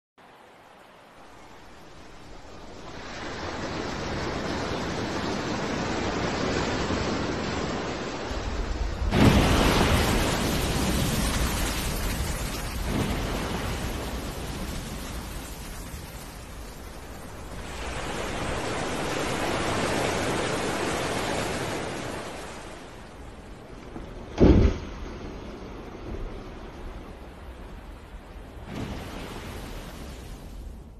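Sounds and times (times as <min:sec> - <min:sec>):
sea waves: 0:00.2 - 0:30.9
wind: 0:00.2 - 0:30.9
whale crashing into water: 0:24.2 - 0:25.6.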